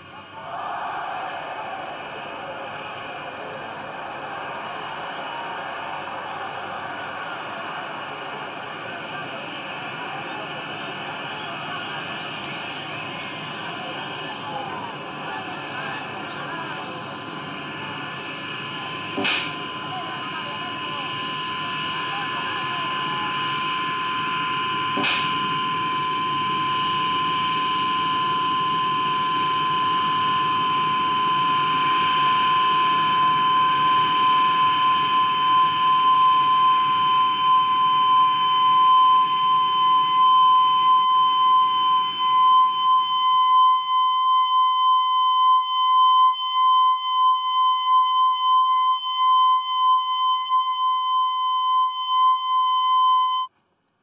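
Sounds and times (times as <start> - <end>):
noisy low rumble: 1.2 - 40.9
piercing high-pitched electronic tone: 10.0 - 53.5
sharp click: 19.2 - 19.6, 25.0 - 25.4.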